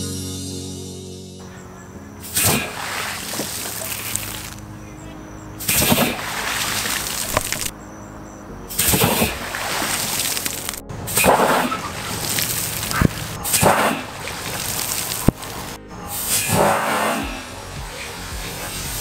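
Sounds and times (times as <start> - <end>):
water spray falling: 2.2 - 4.6, 5.6 - 7.7, 8.7 - 19.0
water cannon blasts: 2.3 - 4.6, 5.6 - 7.7, 8.7 - 19.0.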